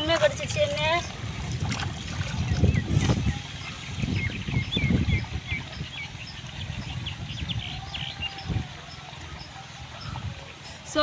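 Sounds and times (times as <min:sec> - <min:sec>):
splashing in shallow water: 0:00.0 - 0:06.9.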